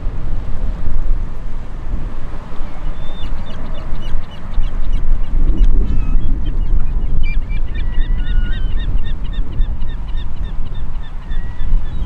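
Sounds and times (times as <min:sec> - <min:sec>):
wind buffeting microphone: 0:00.0 - 0:12.0
bird calling: 0:02.6 - 0:12.0.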